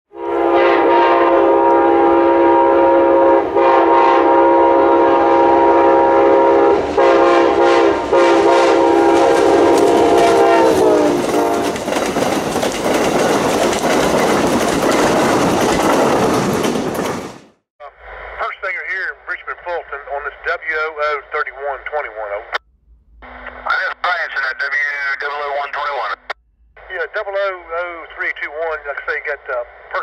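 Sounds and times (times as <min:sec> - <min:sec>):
train air horn blasts: 0:00.1 - 0:11.8
train cars rumbling on rails: 0:00.2 - 0:17.6.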